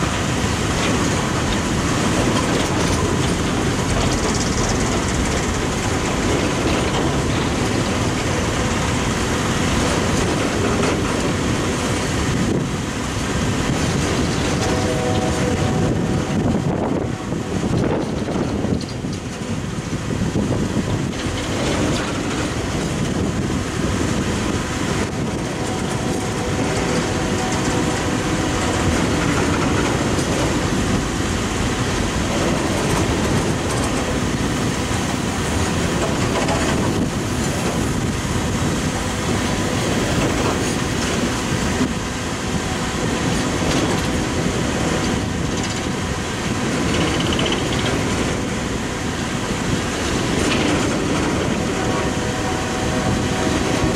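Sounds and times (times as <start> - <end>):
freight train wheels rumbling: 0.0 - 53.9.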